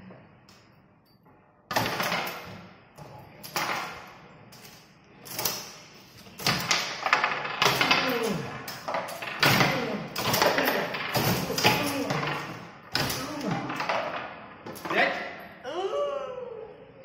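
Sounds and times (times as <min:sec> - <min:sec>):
foosball ball and players clattering: 0:01.7 - 0:15.4
steel rods rattling: 0:04.6 - 0:15.4.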